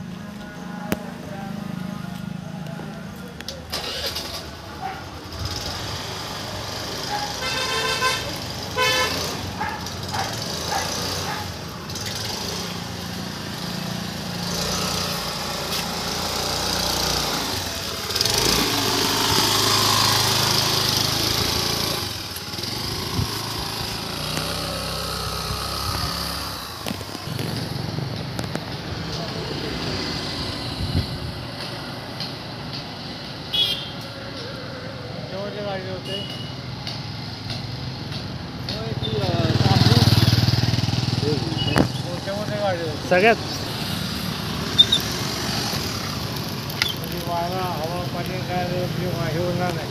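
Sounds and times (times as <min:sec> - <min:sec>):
road traffic noise: 0:00.0 - 0:49.9
vehicle horn toots: 0:07.4 - 0:09.4, 0:33.5 - 0:34.0.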